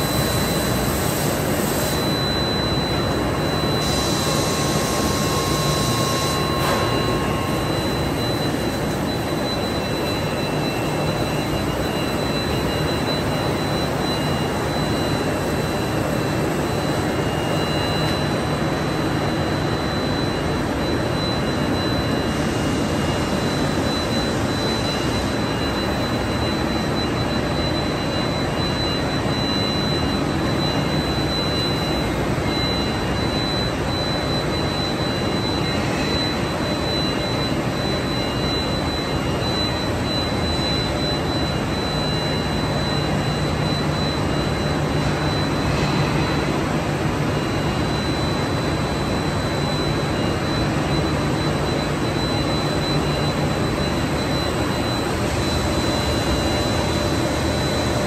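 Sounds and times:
machine motors and fans: 0:00.0 - 0:58.0
thin high whine: 0:00.0 - 0:58.0.

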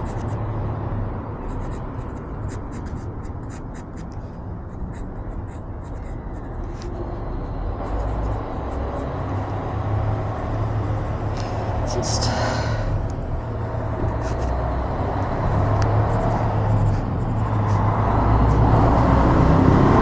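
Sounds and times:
pencil scratching on paper: 0:00.0 - 0:00.7, 0:01.3 - 0:12.4, 0:13.3 - 0:20.0.

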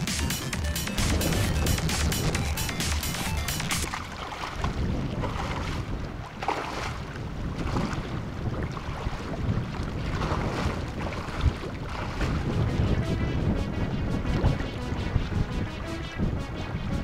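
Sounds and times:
wind buffeting microphone: 0:03.9 - 0:17.0.

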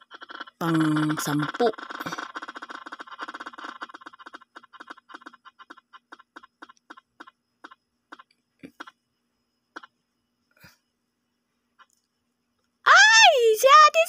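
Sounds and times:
app wheel ticking: 0:00.0 - 0:09.0, 0:09.7 - 0:10.0.

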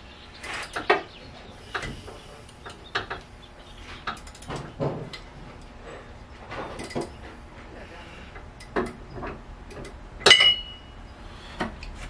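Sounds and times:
loud ringing metal clink: 0:10.2 - 0:11.0.

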